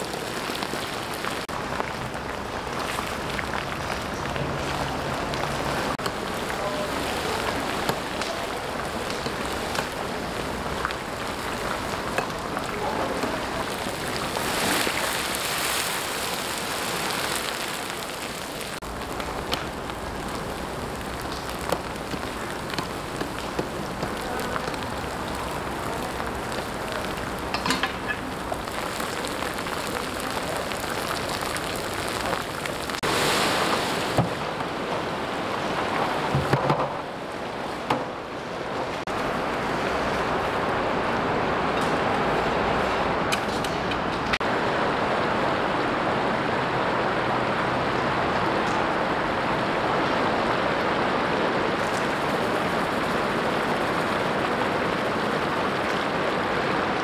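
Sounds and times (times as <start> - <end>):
meat sizzling in hot oil: 28.1 - 33.0.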